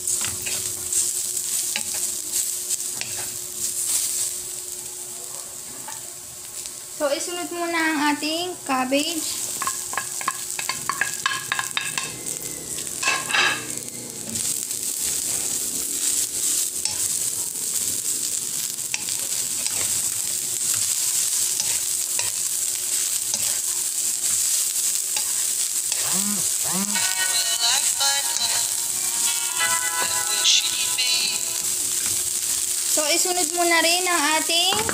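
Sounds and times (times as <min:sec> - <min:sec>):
vegetables sizzling in a pan: 0:00.0 - 0:34.9
music: 0:27.0 - 0:31.7.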